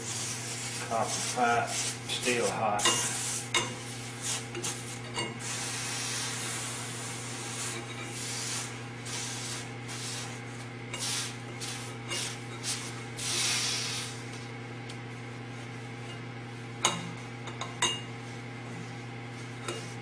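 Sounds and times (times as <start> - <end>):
cloth scrubbing spinning spindle: 0.0 - 14.4.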